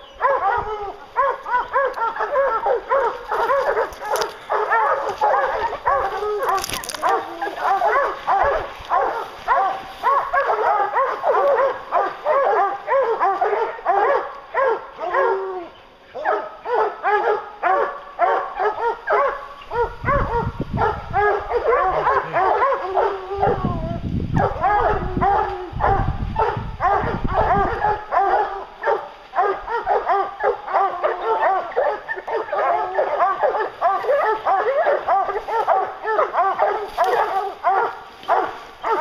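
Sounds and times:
hounds barking and baying: 0.0 - 39.0.

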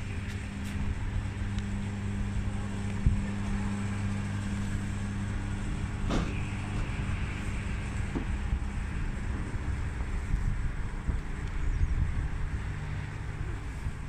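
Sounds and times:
low mechanical hum: 0.0 - 14.0
wind noise on microphone: 0.0 - 14.0
dull thump: 6.0 - 6.5.

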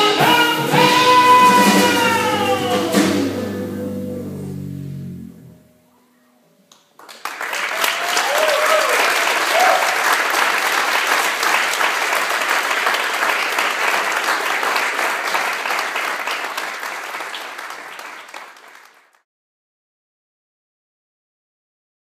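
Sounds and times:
audience applauding: 6.7 - 19.2.

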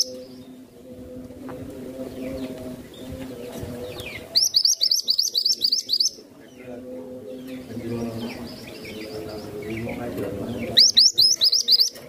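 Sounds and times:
faint bird chirps: 3.8 - 10.0, 10.6 - 12.0
bird chirping loudly: 3.9 - 6.6, 10.6 - 12.0.

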